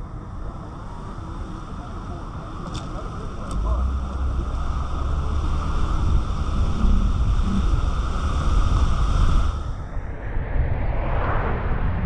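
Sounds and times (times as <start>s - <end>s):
wind rumbling on microphone: 0.0s - 12.0s
tyres hissing on wet pavement: 0.5s - 9.6s.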